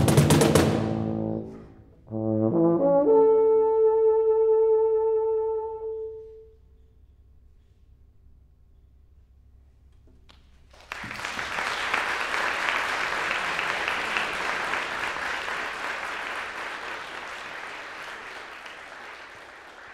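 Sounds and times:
audience applauding: 0:10.7 - 0:19.9.

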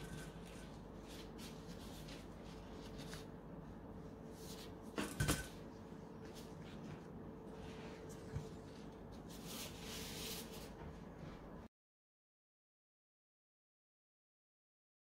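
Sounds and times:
plastic glove rustling: 0:00.3 - 0:03.4.

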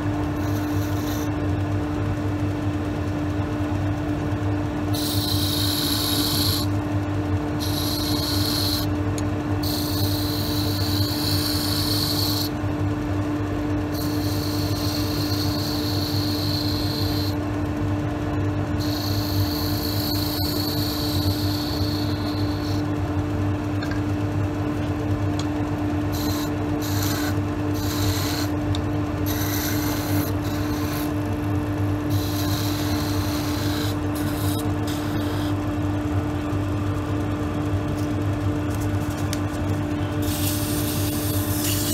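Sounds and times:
turning tool cutting wood hiss: 0:00.3 - 0:01.3, 0:04.9 - 0:06.8, 0:07.6 - 0:09.0, 0:09.6 - 0:12.6, 0:13.9 - 0:17.4, 0:18.8 - 0:22.9, 0:26.1 - 0:28.6, 0:29.2 - 0:31.2, 0:32.0 - 0:35.6, 0:40.2 - 0:41.9
wood lathe motor hum: 0:04.9 - 0:06.8, 0:07.5 - 0:09.0, 0:09.6 - 0:12.6, 0:13.9 - 0:17.4, 0:18.7 - 0:23.0, 0:26.1 - 0:35.6, 0:40.3 - 0:41.9.

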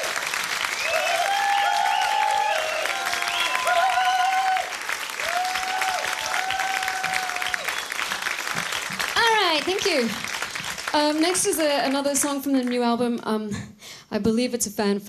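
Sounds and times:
high woo cheers: 0:00.0 - 0:08.1
audience applauding: 0:00.0 - 0:12.9.

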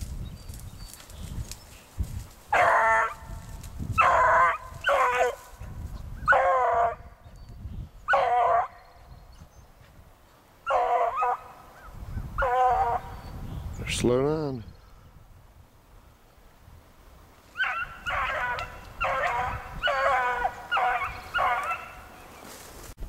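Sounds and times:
hound baying: 0:02.5 - 0:03.2, 0:04.0 - 0:05.6, 0:06.2 - 0:07.1, 0:08.1 - 0:08.8, 0:10.7 - 0:11.6, 0:12.4 - 0:13.1, 0:17.6 - 0:22.1.

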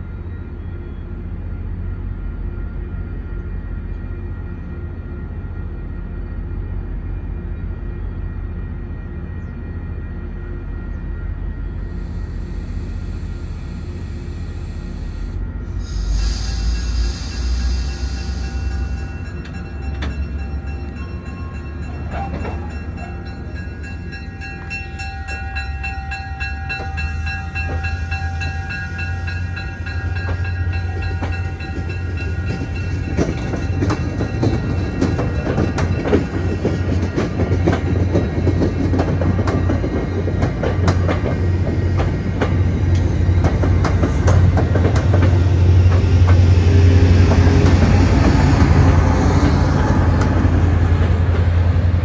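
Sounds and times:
diesel locomotive droning: 0:00.0 - 0:52.0
train wheels clicking over rail joints: 0:26.7 - 0:51.8.

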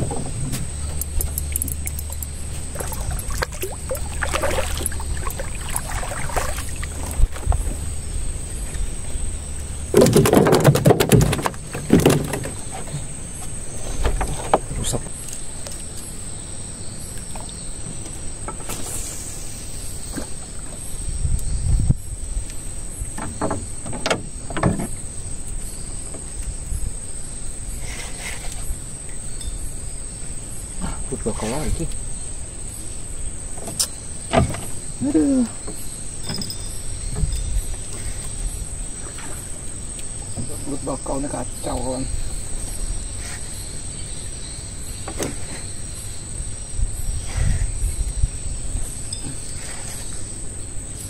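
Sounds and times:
high insect drone: 0:00.0 - 0:51.0
sharp knocks: 0:09.9 - 0:12.6.

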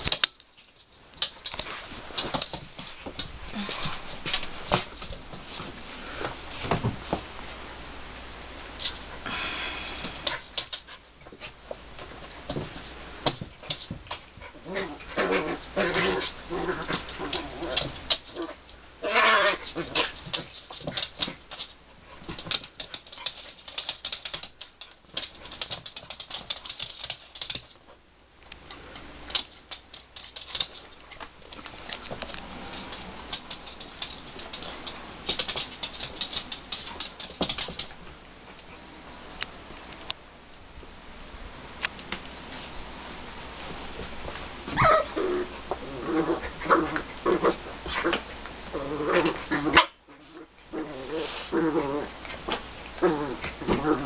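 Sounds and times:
fabric rustling and scratching: 0:43.6 - 0:54.0
puppy whines: 0:44.7 - 0:45.4.

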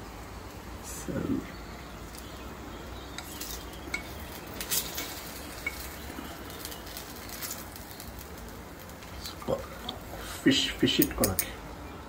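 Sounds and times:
metal utensil scraping a pan: 0:03.2 - 0:06.7.

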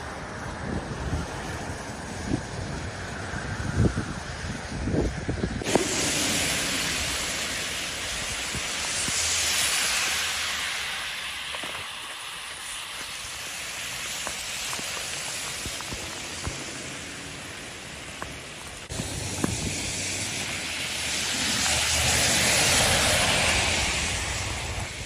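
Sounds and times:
heavy rain falling: 0:05.6 - 0:25.0
tyres hissing through water: 0:05.6 - 0:25.0.

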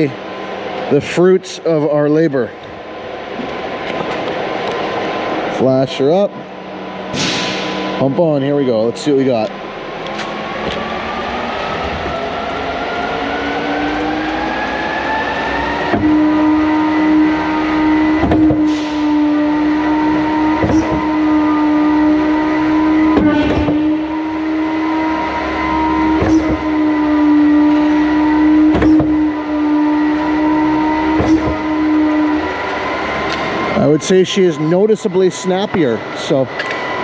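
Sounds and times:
concrete pump droning: 0:00.0 - 0:37.0
sharp metal clank: 0:07.1 - 0:08.0.

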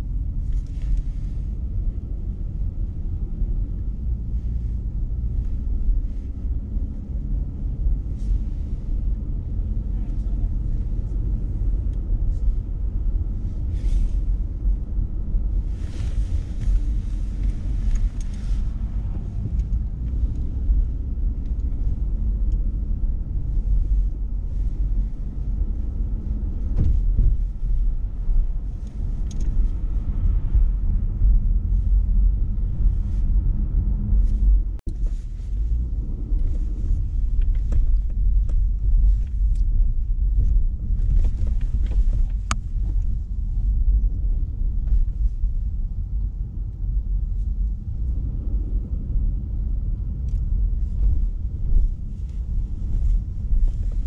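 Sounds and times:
car cabin road rumble: 0:00.0 - 0:54.0.

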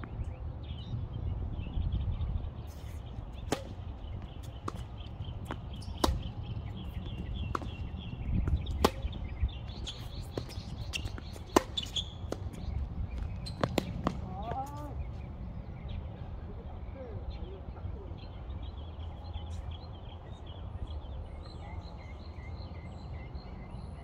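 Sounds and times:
tennis ball struck by rackets: 0:03.4 - 0:14.8
ball bouncing on hard court: 0:03.5 - 0:14.8.

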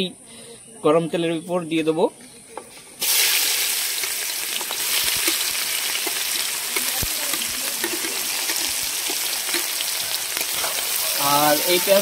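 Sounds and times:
onions sizzling in oil: 0:03.0 - 0:12.0.

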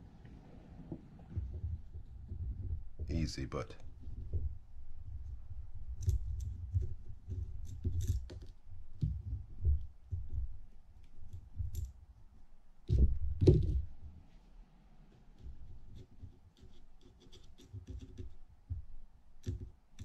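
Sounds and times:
small metal parts clicking: 0:07.6 - 0:08.6.

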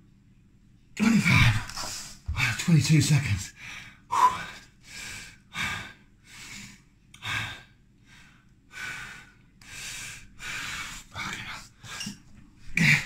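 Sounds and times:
man breathing hard: 0:03.6 - 0:13.0.

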